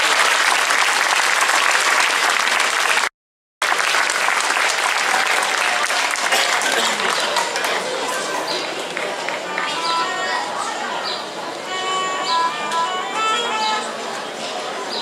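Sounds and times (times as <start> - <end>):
audience applauding: 0.0 - 9.8.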